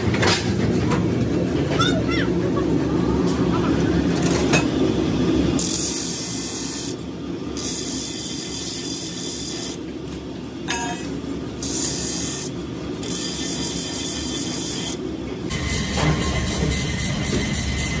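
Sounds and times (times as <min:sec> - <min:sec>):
blade grinding on abrasive disc: 0:11.6 - 0:15.0.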